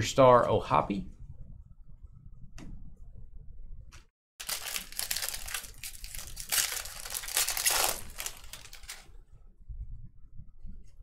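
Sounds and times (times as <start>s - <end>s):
foil wrapper crinkling: 4.4s - 9.1s.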